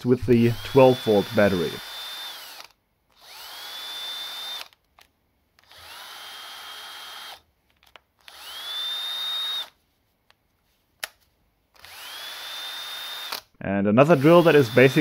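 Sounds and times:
drill motor whining: 0.2 - 4.8, 5.6 - 7.4, 8.2 - 9.7, 11.8 - 13.4, 14.1 - 15.0.

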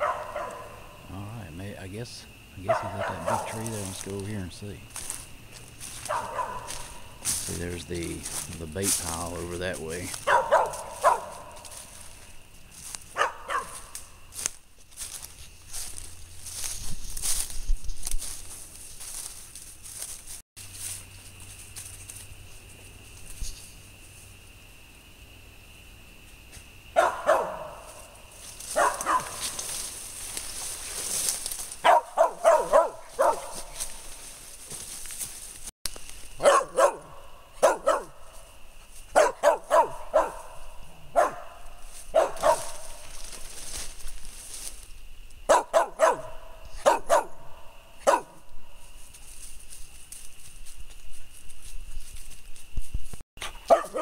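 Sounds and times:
dog barking: 0.0 - 1.0, 2.6 - 3.6, 6.0 - 7.1, 10.1 - 11.8, 13.1 - 14.0, 27.0 - 28.0, 28.7 - 29.5, 31.8 - 33.8, 36.4 - 38.3, 39.1 - 43.0, 45.5 - 48.4, 53.6 - 54.0
night insects chorus: 0.0 - 54.0
brush rustling: 2.7 - 24.3, 27.7 - 45.0, 48.8 - 54.0.

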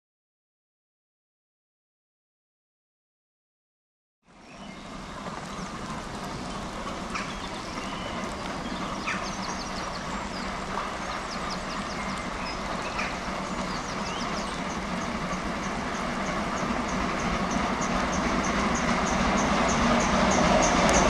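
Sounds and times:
birds singing: 4.3 - 21.0
steam locomotives working hard: 4.3 - 21.0.

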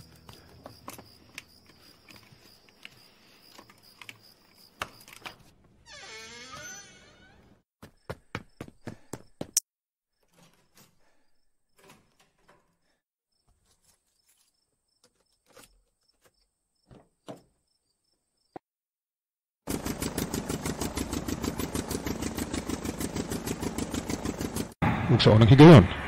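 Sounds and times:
crickets chirping: 0.0 - 5.3, 16.0 - 18.5
small plane engine starting and running: 19.7 - 25.2.

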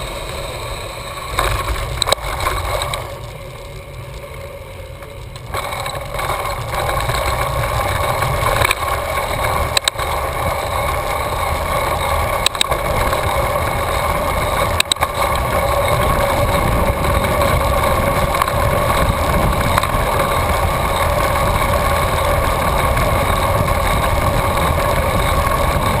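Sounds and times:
bicycle tyre and drivetrain whir: 0.0 - 26.0
wind rumbling on camera: 0.0 - 26.0.

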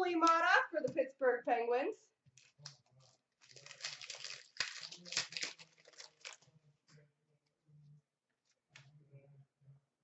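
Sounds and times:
foil wrapper crinkling and tearing: 2.4 - 6.6.

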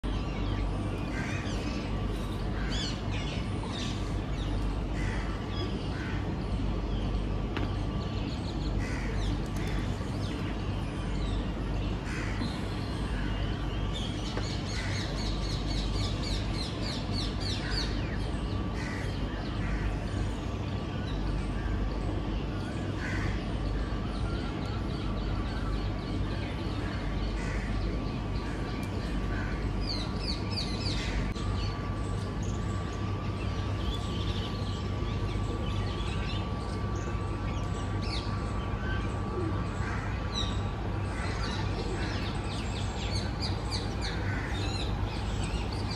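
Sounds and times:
birds chirping: 0.0 - 45.9
crows cawing: 5.0 - 6.3, 8.8 - 9.9, 12.0 - 13.4, 18.7 - 20.0, 23.0 - 23.5, 26.8 - 27.8, 39.8 - 42.4, 43.8 - 45.0.

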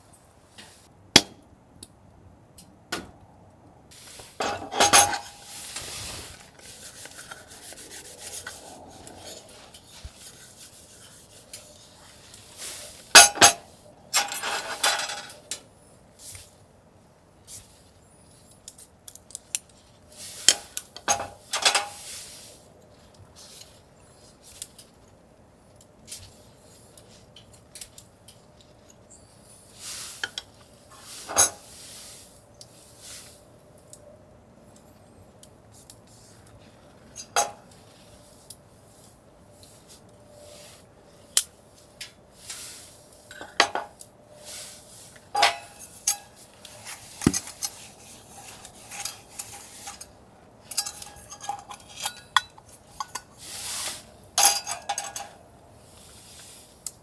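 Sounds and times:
metal cutlery and cookware clinking: 4.4 - 5.6, 13.1 - 15.5, 20.4 - 22.0, 45.4 - 53.3, 54.4 - 55.4.

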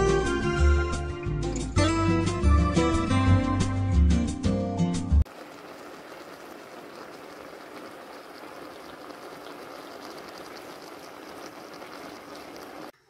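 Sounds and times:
syrup bubbling in a pot: 5.3 - 13.0.

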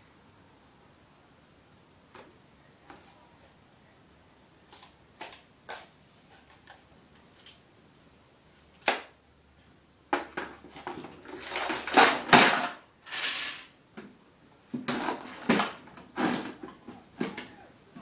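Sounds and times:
tools rattling in plastic toolbox: 10.2 - 13.7, 14.8 - 17.5.

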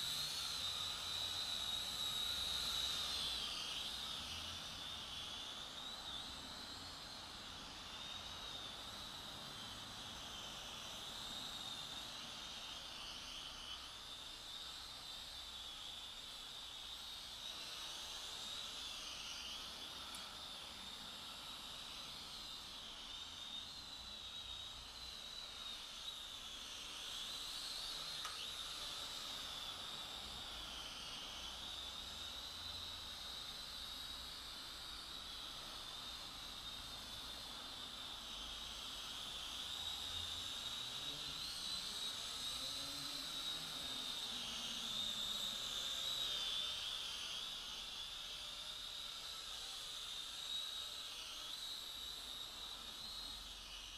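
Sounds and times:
quadcopter motors whining: 0.0 - 53.9.

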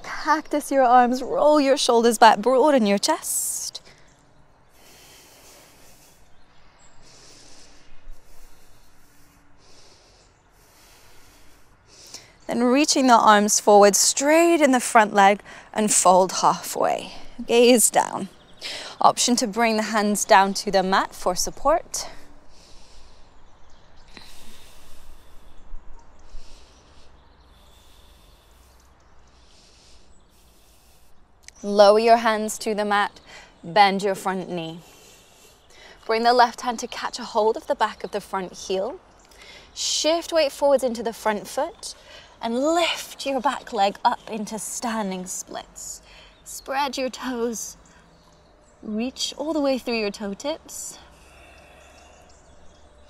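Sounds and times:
faint outdoor background noise: 0.0 - 53.0
woman breathing: 3.8 - 12.5, 15.4 - 15.8, 18.5 - 19.0, 21.9 - 31.3, 33.2 - 33.6, 34.8 - 36.1, 39.3 - 39.8, 46.0 - 46.5, 50.9 - 53.0.

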